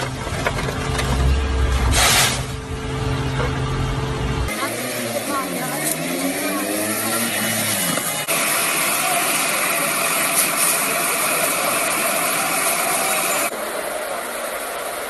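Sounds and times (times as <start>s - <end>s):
fire crackling and hissing: 8.3s - 15.0s.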